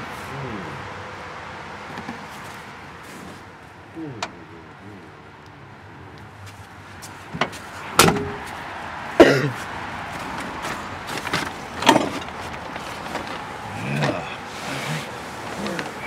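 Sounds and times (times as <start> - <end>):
truck door shutting: 7.4 - 8.5.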